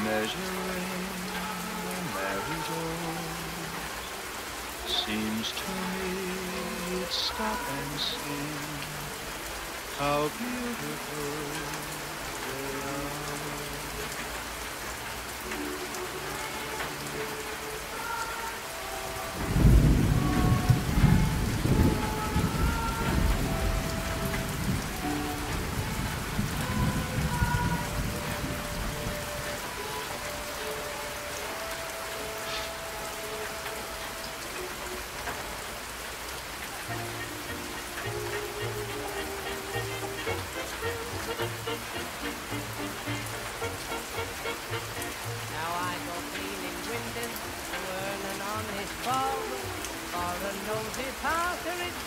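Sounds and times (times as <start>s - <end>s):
steady rain: 0.0s - 52.0s
sustained musical tones: 0.0s - 52.0s
low rumble of thunder: 19.4s - 29.0s.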